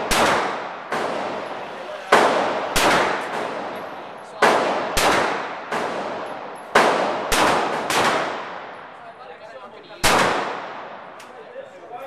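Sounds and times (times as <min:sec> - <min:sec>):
pistol shots echoing indoors: 0:00.0 - 0:01.5, 0:02.1 - 0:03.7, 0:04.4 - 0:08.7, 0:10.0 - 0:10.8.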